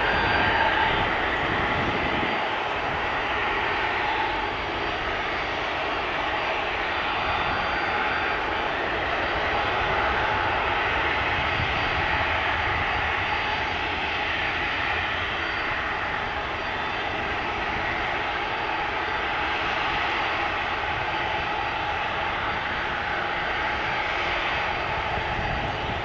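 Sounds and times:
faint high whine: 0:00.0 - 0:26.0
jet airliner engines droning: 0:00.0 - 0:26.0.

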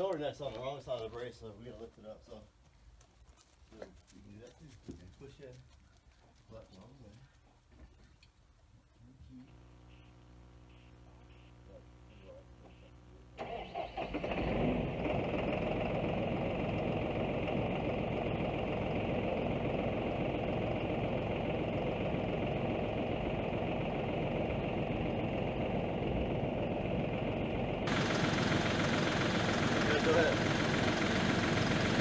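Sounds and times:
tractor engine starting and idling: 0:13.4 - 0:32.0.

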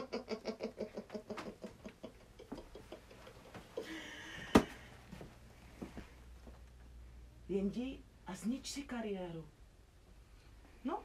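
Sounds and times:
man laughing mockingly: 0:00.0 - 0:04.6.

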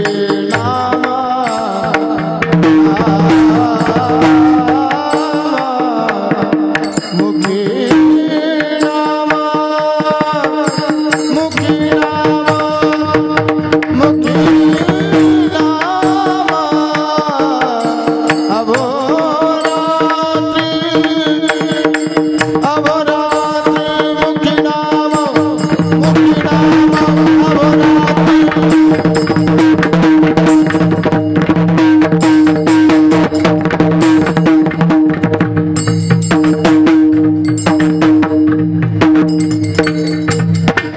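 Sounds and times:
hand drum strokes: 0:00.0 - 0:40.9
man singing devotional tune: 0:00.0 - 0:40.9
small hand cymbals clashing: 0:06.8 - 0:07.9, 0:10.6 - 0:11.8, 0:25.1 - 0:27.6, 0:28.5 - 0:31.5, 0:32.2 - 0:40.9.

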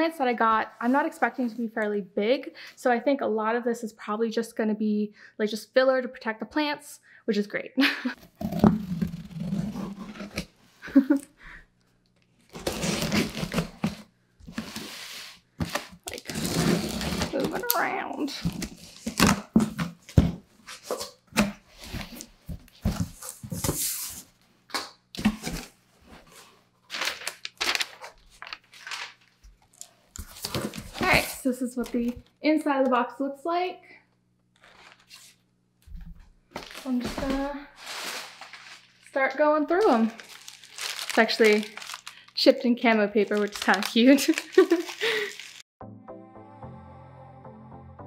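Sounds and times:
cardboard box being cut open: 0:08.2 - 0:10.5, 0:12.5 - 0:14.9, 0:15.6 - 0:17.7
paper packing filler rustling: 0:12.5 - 0:17.7, 0:25.2 - 0:31.4, 0:34.6 - 0:35.4, 0:36.5 - 0:39.2, 0:39.8 - 0:42.4, 0:43.2 - 0:45.6.

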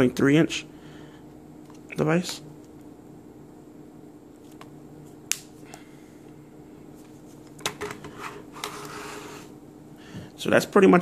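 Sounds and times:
faint steady hum: 0:00.0 - 0:11.0
rubbing slide: 0:08.2 - 0:09.5.

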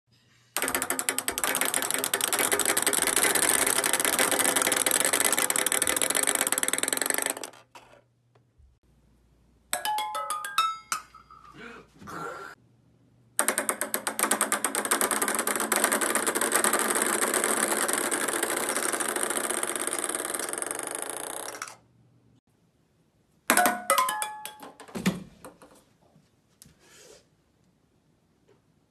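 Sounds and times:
ball bouncing off metal pans: 0:00.6 - 0:07.9, 0:23.5 - 0:25.8
ping pong ball rattling between boards: 0:00.6 - 0:08.0, 0:13.4 - 0:21.8, 0:23.5 - 0:25.8.

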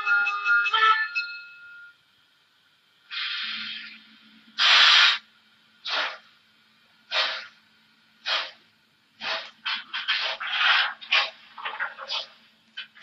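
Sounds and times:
faint steady hum: 0:00.0 - 0:13.0
steam hiss: 0:03.1 - 0:04.0, 0:04.6 - 0:06.3, 0:07.1 - 0:07.6, 0:08.2 - 0:08.6, 0:09.2 - 0:11.4
model steam locomotive chuffing: 0:07.1 - 0:07.6.

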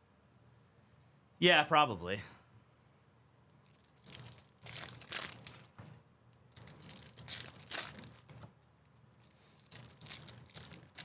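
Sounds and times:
foil wrappers crinkling and tearing: 0:03.6 - 0:05.8, 0:06.5 - 0:08.5, 0:09.2 - 0:11.0.

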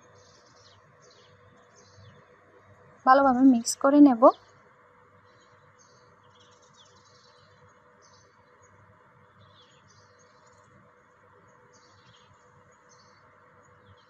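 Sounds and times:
low steady hum: 0:00.0 - 0:04.7.

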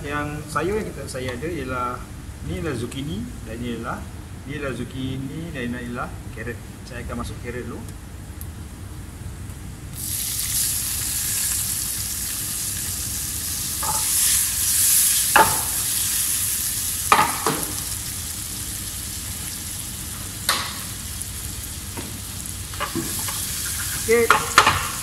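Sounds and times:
carrots sizzling in oil: 0:10.0 - 0:25.0
utensil clacking against pan: 0:22.8 - 0:25.0.

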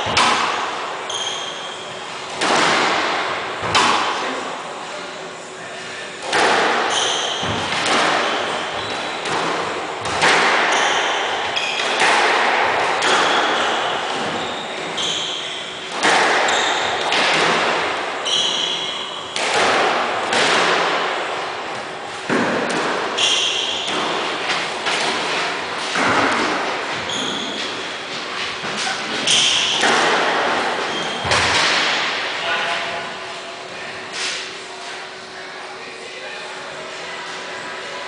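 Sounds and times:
squash ball hitting walls: 0:00.0 - 0:01.7, 0:02.3 - 0:04.4, 0:06.2 - 0:32.3
racquets striking ball: 0:00.0 - 0:04.2, 0:06.2 - 0:15.3, 0:15.9 - 0:32.3
shoes squeaking on wooden floor: 0:26.9 - 0:27.9.

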